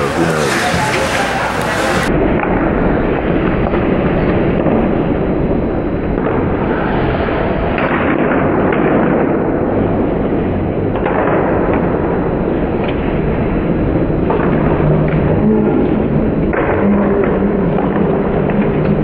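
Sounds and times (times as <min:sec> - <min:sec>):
hockey sticks clacking: 0:00.0 - 0:02.5, 0:14.2 - 0:19.0
low rink noise: 0:00.0 - 0:19.0.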